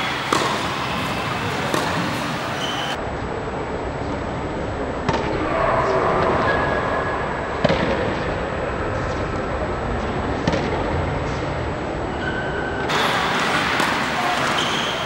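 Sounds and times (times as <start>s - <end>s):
tennis ball struck by racket: 0.0s - 2.9s, 12.9s - 15.0s
indoor court background noise: 0.0s - 15.0s.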